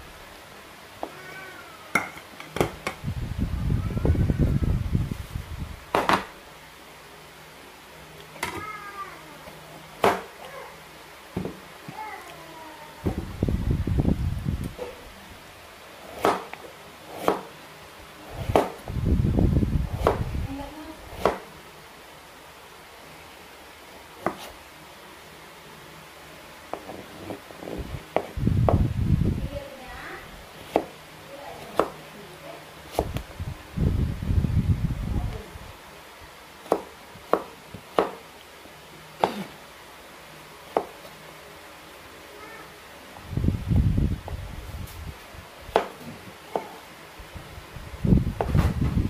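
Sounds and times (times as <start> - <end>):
knife chopping on wooden board: 5.9 - 6.3, 10.0 - 10.3, 16.1 - 17.5, 18.4 - 18.8, 20.0 - 20.3, 21.2 - 21.5, 24.2 - 24.5, 26.7 - 28.8, 30.6 - 31.0, 31.6 - 32.0, 32.9 - 33.2, 36.6 - 38.2, 39.2 - 39.5, 45.7 - 46.8
knife cutting on wooden board: 16.0 - 17.5, 24.2 - 24.6.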